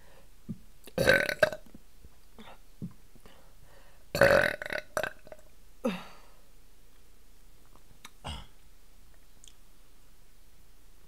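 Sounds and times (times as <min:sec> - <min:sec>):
woman burping: 0:01.0 - 0:01.7, 0:04.2 - 0:06.2, 0:08.2 - 0:08.6.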